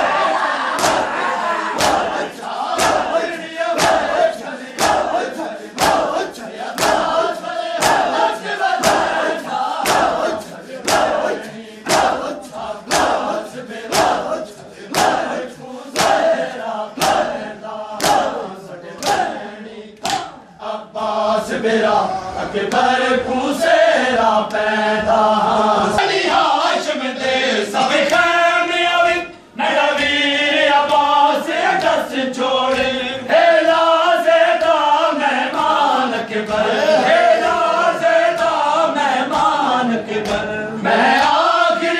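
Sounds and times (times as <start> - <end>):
men chanting in unison: 0.0 - 41.9
hands slapping bare chests: 0.7 - 1.1, 1.8 - 16.4, 17.0 - 17.4, 18.0 - 18.4, 19.0 - 19.4, 20.0 - 20.4, 40.2 - 40.5.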